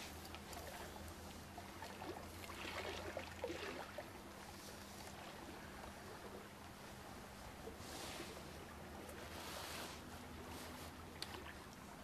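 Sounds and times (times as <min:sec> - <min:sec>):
low steady hum: 0:00.0 - 0:12.0
water sloshing and trickling: 0:00.0 - 0:12.0
small splashes: 0:00.4 - 0:04.2.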